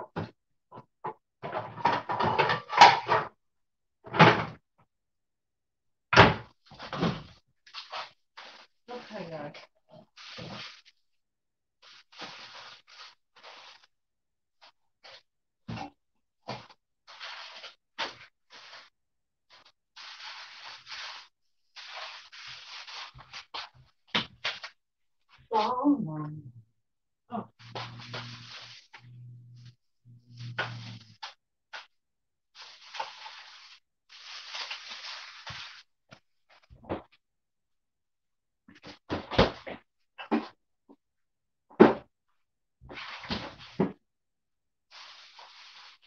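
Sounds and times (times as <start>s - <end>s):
kitchen knocks and clunks: 0.0s - 3.4s, 4.0s - 4.6s, 6.1s - 7.3s, 41.7s - 42.1s
rubbing and scraping noises: 11.8s - 13.9s, 16.5s - 24.8s, 27.6s - 32.0s, 42.8s - 43.9s, 44.9s - 46.0s.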